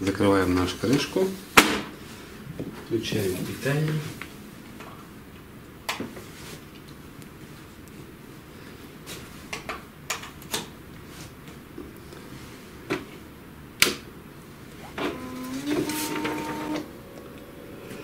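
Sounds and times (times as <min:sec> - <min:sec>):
printer motor whine: 0:14.8 - 0:18.0
printer mechanism clicks: 0:14.9 - 0:16.9.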